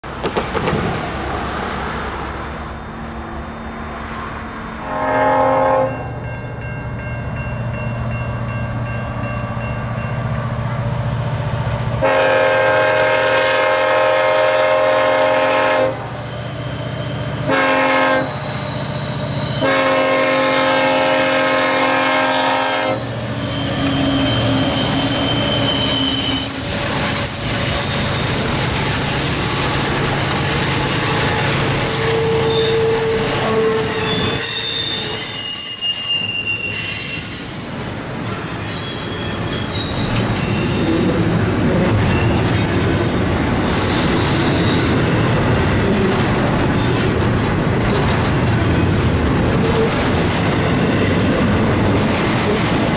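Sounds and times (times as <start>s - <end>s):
freight cars rumbling on rail: 0.0s - 52.9s
train horn blasts: 4.8s - 6.3s, 12.0s - 16.3s, 17.4s - 18.6s, 19.5s - 24.9s, 31.1s - 35.4s
locomotive engine rumble: 38.0s - 52.9s.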